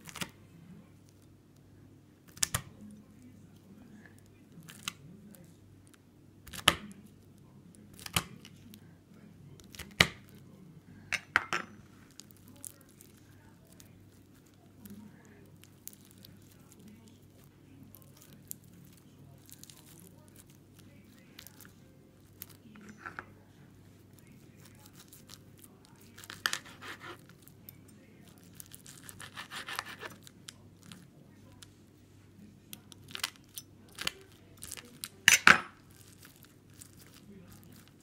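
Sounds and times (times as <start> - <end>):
knife cutting crackling slime: 26.2 - 27.3, 28.6 - 30.3.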